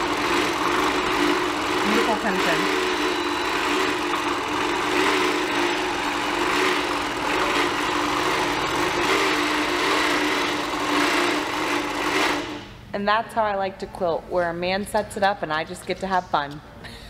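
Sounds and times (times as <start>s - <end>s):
quilting machine stitching: 0.0s - 12.7s.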